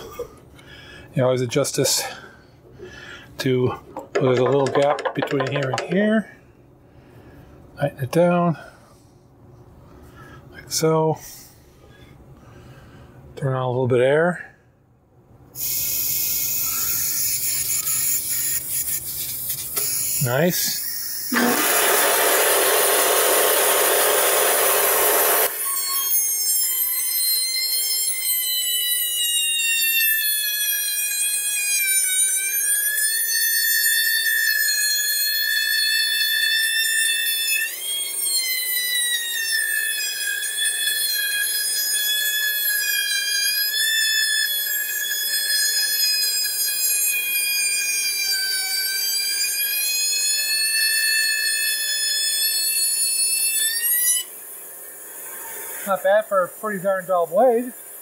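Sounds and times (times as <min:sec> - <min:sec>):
loud hiss: 0:15.6 - 0:26.0
bandsaw cutting wood: 0:21.3 - 0:26.2.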